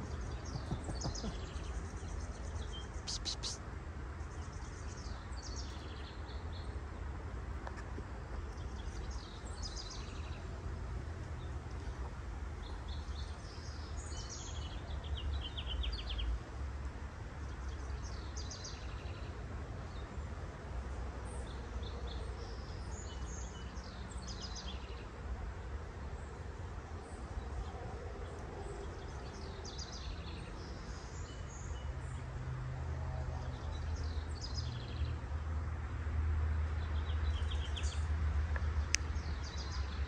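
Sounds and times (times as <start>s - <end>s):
small birds chirping: 0.0s - 6.8s, 36.8s - 40.0s.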